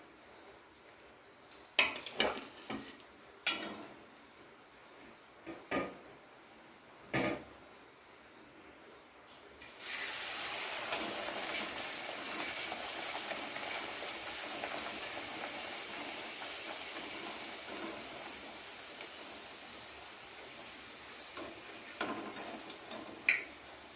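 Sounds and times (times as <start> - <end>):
hot oil sizzling: 9.6 - 23.9.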